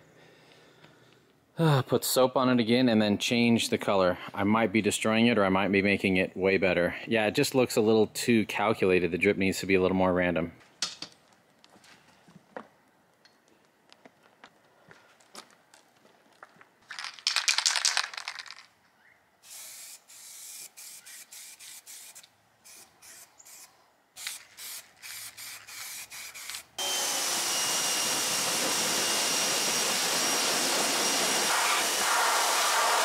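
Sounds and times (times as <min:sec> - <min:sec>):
spray can shaken: 0:16.9 - 0:18.7
spray can hissing bursts: 0:19.4 - 0:26.8, 0:31.2 - 0:33.0
pressure washer running: 0:26.8 - 0:33.0.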